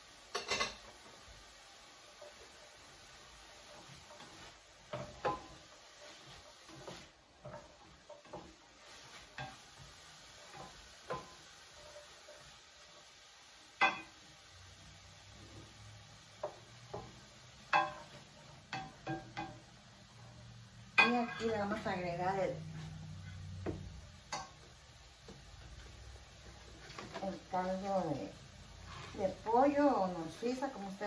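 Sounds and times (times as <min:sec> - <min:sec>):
faint sizzle: 0:00.0 - 0:31.0
metal spoon clinking and scraping pan: 0:00.2 - 0:01.0, 0:03.6 - 0:12.5, 0:13.7 - 0:14.2, 0:16.4 - 0:19.7, 0:20.9 - 0:21.9, 0:24.2 - 0:24.7
spoon knocking on pan: 0:03.8 - 0:05.7, 0:09.3 - 0:11.5, 0:13.8 - 0:14.2, 0:16.4 - 0:19.7, 0:23.6 - 0:25.5.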